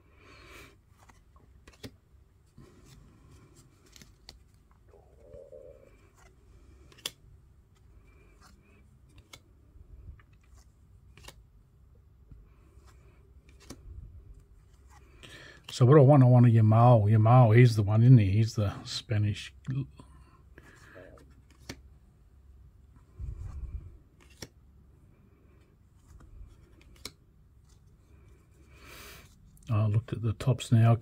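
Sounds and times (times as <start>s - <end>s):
cards rustling: 0.4s - 15.7s, 20.5s - 22.0s, 22.8s - 30.2s
card edges clicking: 1.0s - 2.0s, 5.9s - 9.6s, 10.3s - 11.4s, 13.4s - 13.8s, 21.3s - 21.9s, 24.2s - 24.5s, 26.6s - 27.2s.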